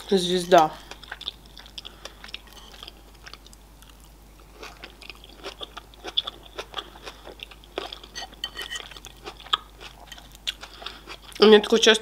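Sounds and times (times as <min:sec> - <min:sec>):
chewing salad: 0:00.4 - 0:11.8.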